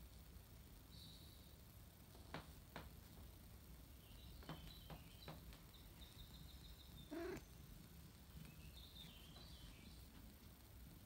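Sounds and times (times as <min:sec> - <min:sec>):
faint high chirps: 0:03.9 - 0:10.2
cat meowing: 0:07.1 - 0:07.5.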